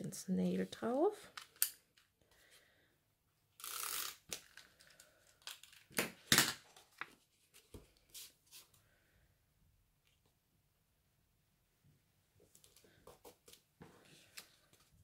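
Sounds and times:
paper rustling and crinkling: 0:06.6 - 0:08.7.

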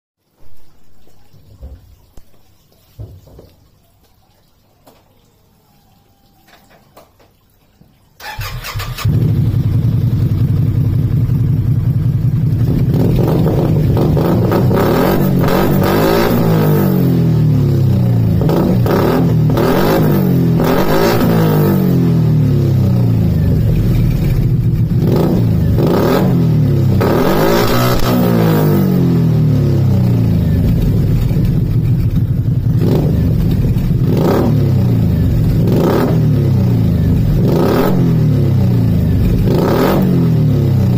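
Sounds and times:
engine starting: 0:08.2 - 0:09.6
engine idling and revving: 0:08.3 - 0:40.9.

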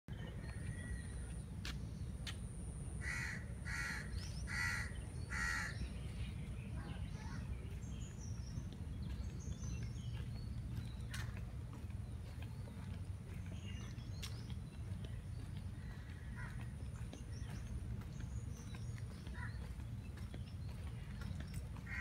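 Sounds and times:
steady low rumble: 0:00.1 - 0:22.0
crow cawing: 0:03.0 - 0:05.8.

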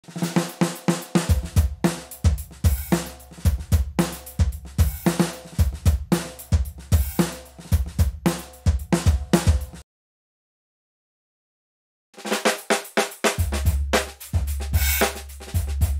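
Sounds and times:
drum kit groove: 0:00.0 - 0:09.8, 0:12.2 - 0:15.9
snare drum: 0:00.0 - 0:09.8, 0:12.2 - 0:15.9
cymbals: 0:00.1 - 0:07.7, 0:12.2 - 0:15.8
kick drum: 0:03.5 - 0:09.8.

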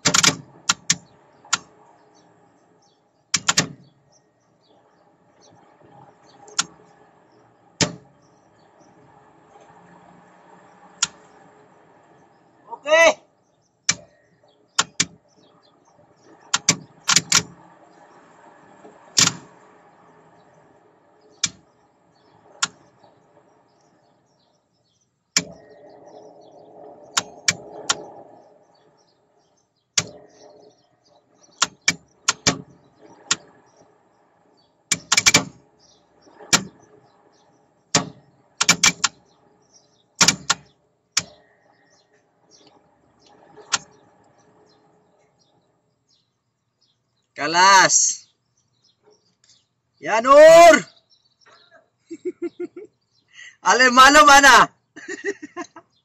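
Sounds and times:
sharp clicks and knocks: 0:00.0 - 0:02.2, 0:03.3 - 0:04.0, 0:05.4 - 0:07.1, 0:07.8 - 0:08.2, 0:11.0 - 0:11.4, 0:13.8 - 0:18.0, 0:18.8 - 0:19.5, 0:21.3 - 0:21.7, 0:22.4 - 0:24.0, 0:25.3 - 0:25.8, 0:27.1 - 0:28.3, 0:29.9 - 0:30.4, 0:31.4 - 0:34.0, 0:34.9 - 0:39.5, 0:40.2 - 0:41.5, 0:42.1 - 0:44.5.

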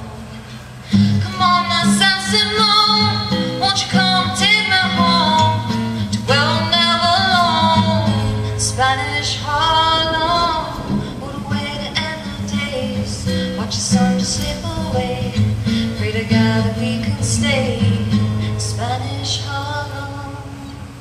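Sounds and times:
acoustic guitar: 0:00.0 - 0:21.0
woman singing folk song: 0:00.0 - 0:21.0.

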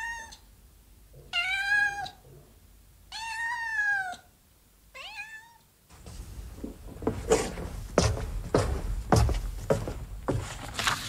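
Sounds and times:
cat meowing: 0:01.3 - 0:02.2, 0:03.1 - 0:04.3, 0:05.0 - 0:05.7
short rustle: 0:05.9 - 0:11.0.

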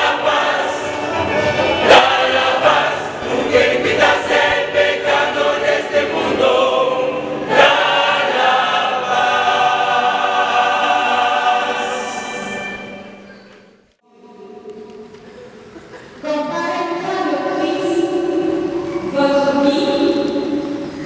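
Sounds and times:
choir singing a hymn: 0:00.0 - 0:13.3.

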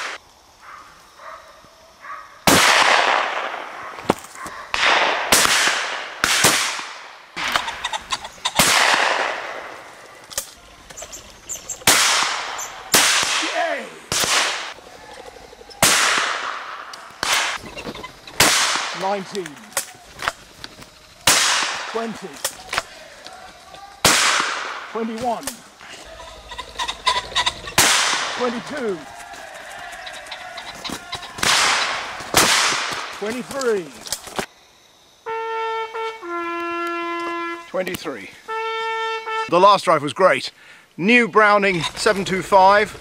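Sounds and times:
shotgun shots echoing: 0:02.4 - 0:07.8, 0:08.5 - 0:10.1, 0:11.8 - 0:14.8, 0:15.8 - 0:17.6, 0:18.3 - 0:20.3, 0:21.2 - 0:22.9, 0:24.0 - 0:25.6, 0:27.7 - 0:29.0, 0:31.3 - 0:33.8.

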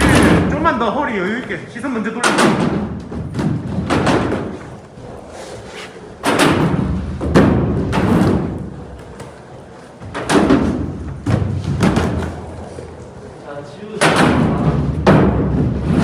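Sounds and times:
skateboard thuds: 0:02.2 - 0:04.8, 0:06.2 - 0:09.4, 0:10.0 - 0:12.5, 0:14.0 - 0:16.0
skateboard wheels rolling on wood: 0:02.6 - 0:13.4.

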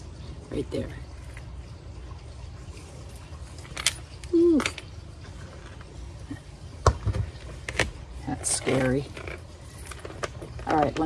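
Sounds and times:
metal chain clinking: 0:03.0 - 0:05.0, 0:08.5 - 0:11.0.

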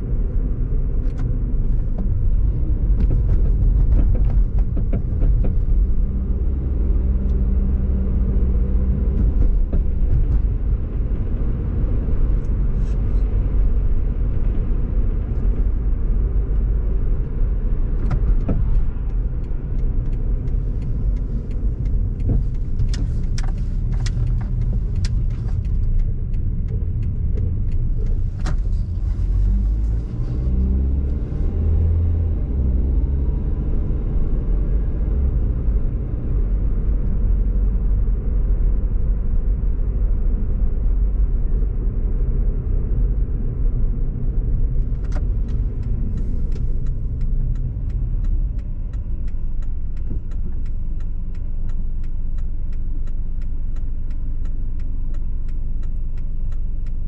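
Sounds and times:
car engine and tyre rumble: 0:00.0 - 0:57.0
sharp clicks: 0:44.8 - 0:57.0.

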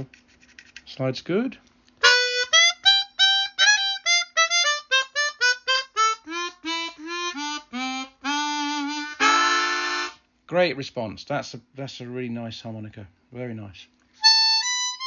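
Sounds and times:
harmonica playing: 0:02.0 - 0:10.3, 0:14.2 - 0:15.0.

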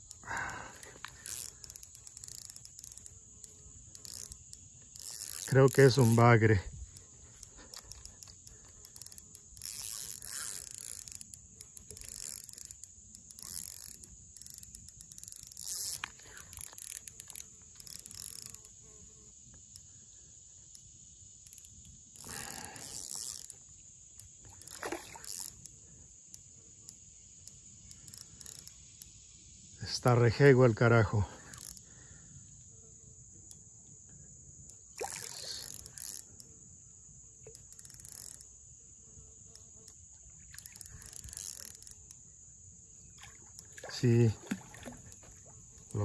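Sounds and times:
insect chorus: 0:00.0 - 0:46.0
fish splashing at surface: 0:24.8 - 0:25.3, 0:43.2 - 0:45.5.

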